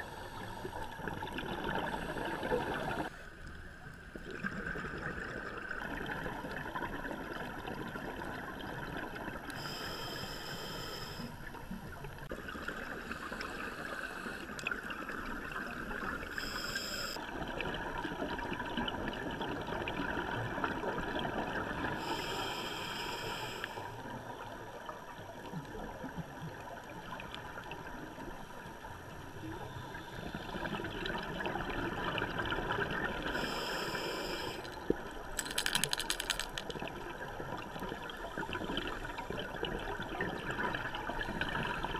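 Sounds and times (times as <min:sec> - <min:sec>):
regulator inhalation hiss: 0:00.0 - 0:01.0, 0:09.6 - 0:11.4, 0:13.0 - 0:14.5, 0:16.3 - 0:17.2, 0:22.0 - 0:24.0, 0:33.3 - 0:34.8
underwater bubbles rushing: 0:00.0 - 0:03.1, 0:03.9 - 0:09.5, 0:30.5 - 0:33.4.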